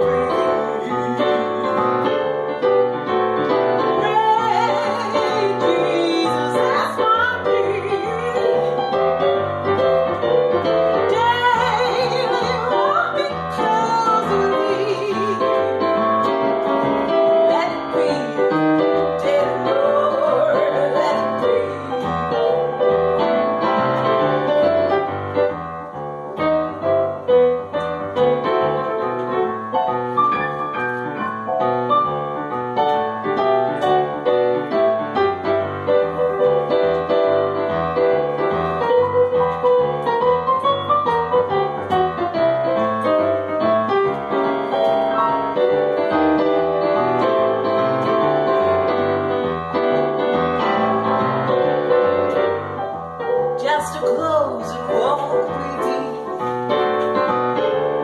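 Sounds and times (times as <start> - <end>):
woman singing with vibrato: 0.0 - 2.4, 4.0 - 9.0, 11.0 - 15.8, 17.3 - 22.6, 53.6 - 56.4
piano playing: 0.0 - 58.0.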